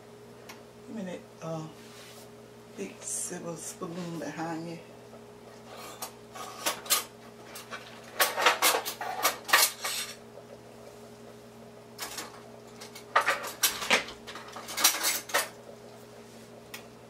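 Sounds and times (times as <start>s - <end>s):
steady low hum: 0.0s - 17.0s
metal utensils clattering on dishes: 5.8s - 10.2s, 12.0s - 15.6s.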